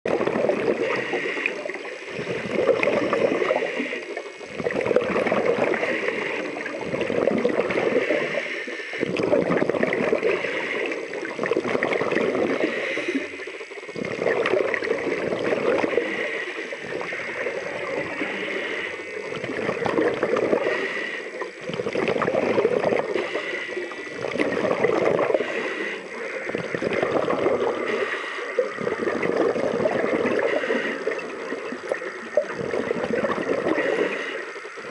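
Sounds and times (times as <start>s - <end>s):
exhaled bubbles rushing: 0.1s - 34.9s
regulator breath hiss: 0.8s - 4.5s, 5.6s - 6.8s, 7.6s - 9.2s, 10.1s - 11.3s, 12.4s - 13.9s, 15.4s - 19.4s, 20.5s - 21.7s, 22.4s - 24.3s, 25.2s - 26.8s, 27.6s - 29.0s, 30.1s - 32.2s, 33.6s - 34.9s.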